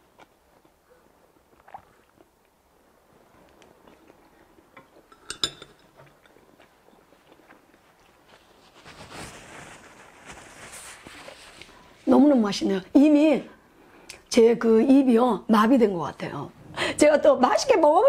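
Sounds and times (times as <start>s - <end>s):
soft eating sounds: 0.0s - 14.3s.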